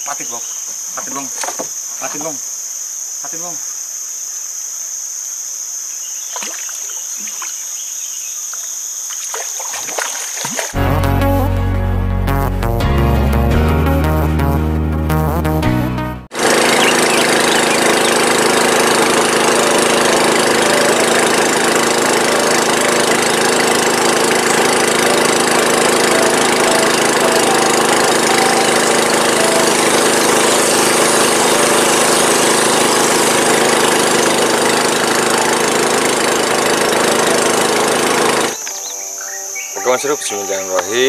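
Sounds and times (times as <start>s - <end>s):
boat engine running steadily: 16.4s - 38.6s.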